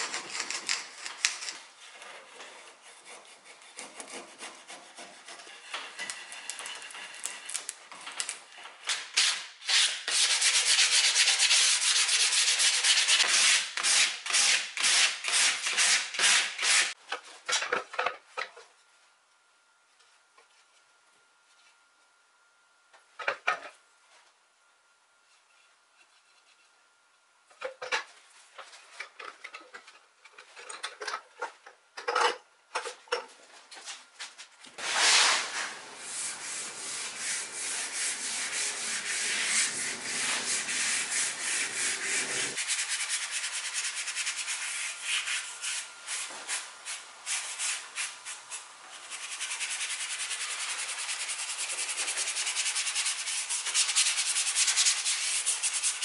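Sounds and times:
paintbrush scrubbing wood: 34.8s - 46.6s.

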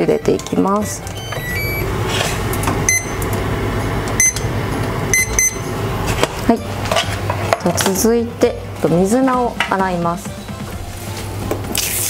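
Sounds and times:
steady low hum: 0.0s - 11.8s
short electronic beeps: 1.2s - 1.9s.

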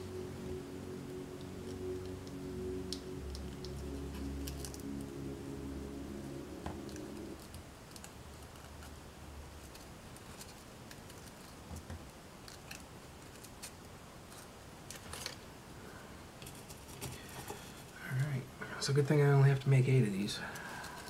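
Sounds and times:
background music: 0.0s - 7.6s.

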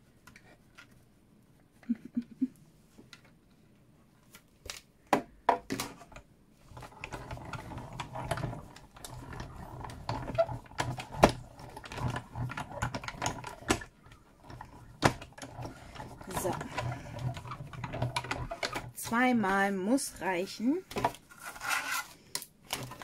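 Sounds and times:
hand-cranked machine grinding: 6.7s - 19.2s.

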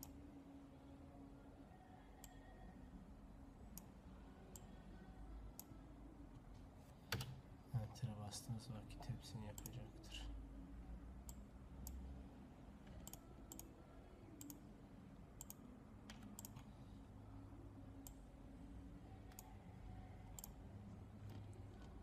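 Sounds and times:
low steady hum: 0.0s - 22.0s
computer mouse clicks: 7.1s - 7.4s, 11.3s - 12.0s, 12.9s - 13.7s, 14.4s - 14.6s, 15.4s - 16.7s, 20.3s - 20.6s.

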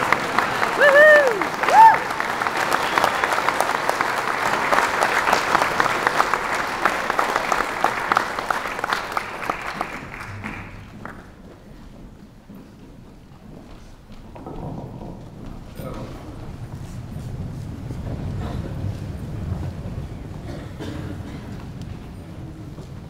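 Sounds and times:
crowd applauding: 0.0s - 11.6s.

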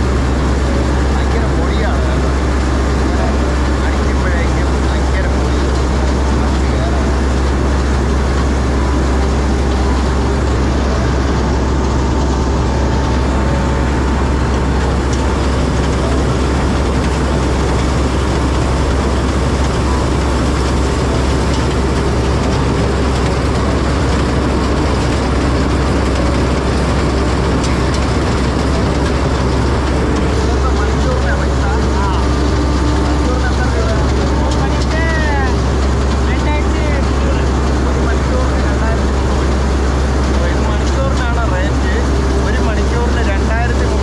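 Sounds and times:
combine harvester running: 0.0s - 44.0s.

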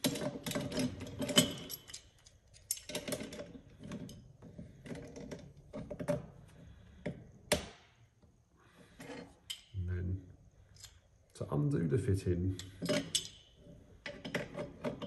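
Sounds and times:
wrench clicking and scraping on metal nut: 0.0s - 4.2s, 10.7s - 11.0s, 12.6s - 15.0s.

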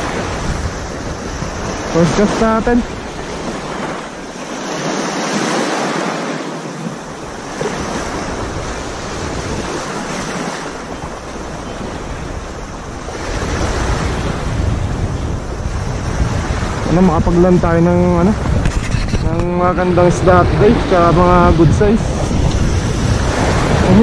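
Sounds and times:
small waves washing on shore: 0.0s - 24.0s
wind buffeting microphone: 0.0s - 24.0s.

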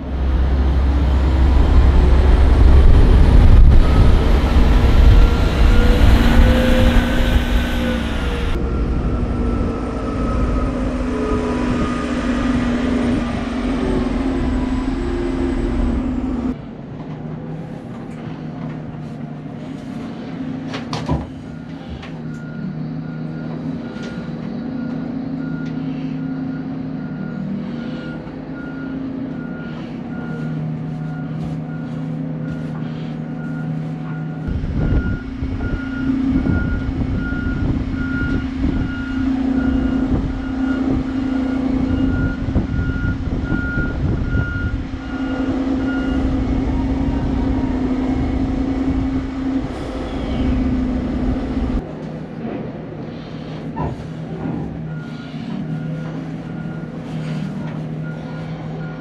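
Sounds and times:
diesel engine running: 0.0s - 59.0s
backup alarm beeping: 33.4s - 51.8s.

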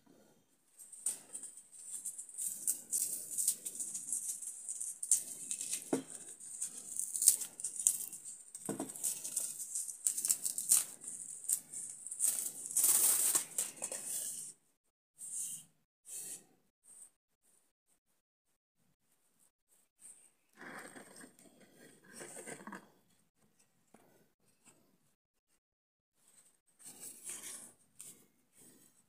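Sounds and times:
dry straw rustling and tearing: 1.8s - 14.0s.

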